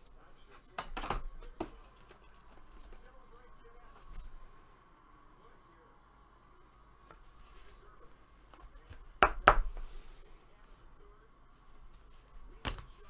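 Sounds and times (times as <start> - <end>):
trading cards handled and flipped: 11.5 - 13.0.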